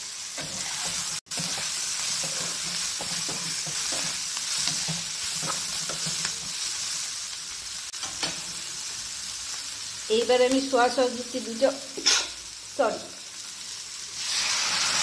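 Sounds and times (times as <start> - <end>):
vegetables sizzling in a frying pan: 0.0 - 15.0
spatula scraping and tapping pan: 0.4 - 6.6.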